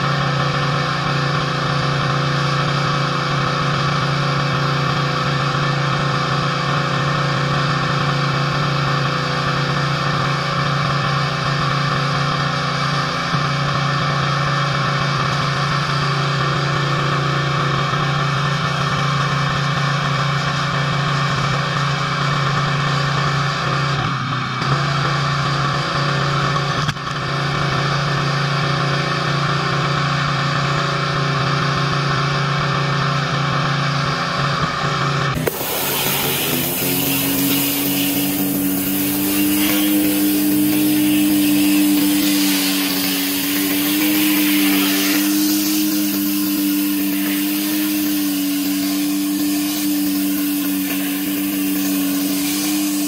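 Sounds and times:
pressure washer engine running: 0:00.0 - 0:53.0
high-pressure water spray hiss: 0:35.4 - 0:53.0.

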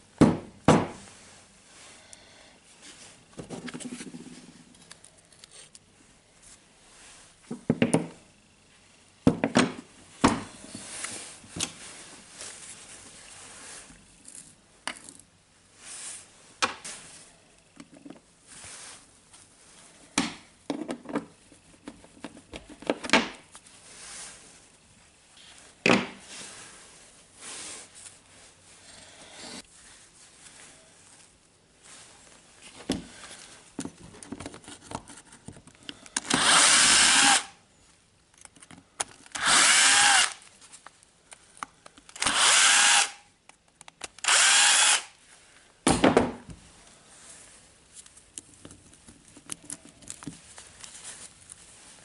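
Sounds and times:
quiet rustling: 0:46.6 - 0:52.0.

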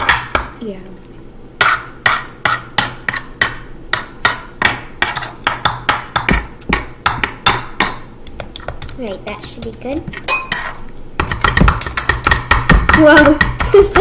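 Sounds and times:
metal spatulas knocking on wooden board: 0:01.6 - 0:09.0, 0:10.3 - 0:14.0.

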